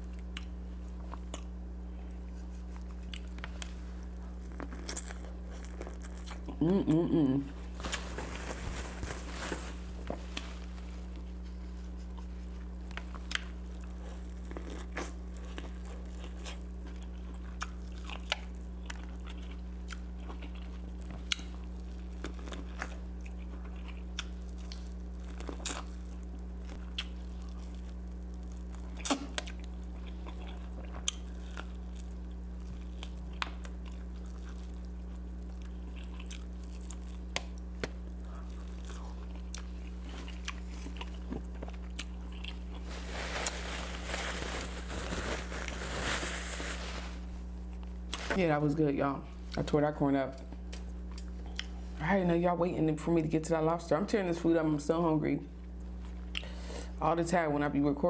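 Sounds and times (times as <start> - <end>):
chewing and mouth smacks: 0.0 - 6.6, 11.8 - 42.9, 50.4 - 51.8
steady low hum: 0.0 - 58.0
crunchy bites of corn: 4.3 - 6.6, 12.9 - 46.2.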